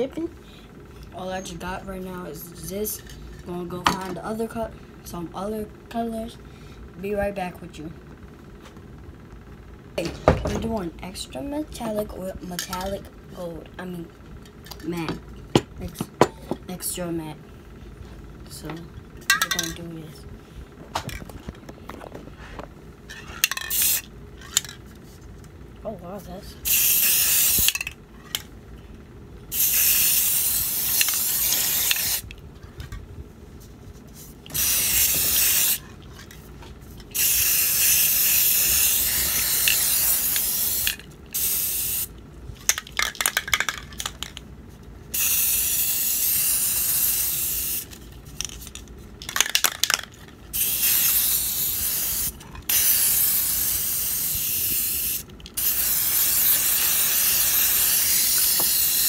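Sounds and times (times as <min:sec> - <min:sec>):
spray can hissing: 0:23.5 - 0:24.0, 0:26.6 - 0:27.8, 0:29.5 - 0:32.3, 0:34.5 - 0:35.8, 0:37.2 - 0:42.1, 0:45.1 - 0:48.0, 0:50.5 - 0:59.0.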